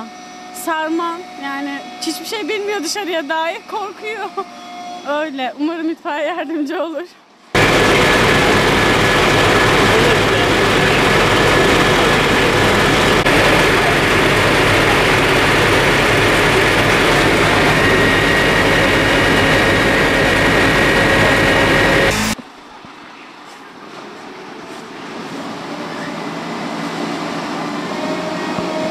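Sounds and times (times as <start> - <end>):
thin steady whine: 0.0 - 5.9, 7.6 - 23.4
truck engine running: 7.6 - 22.4.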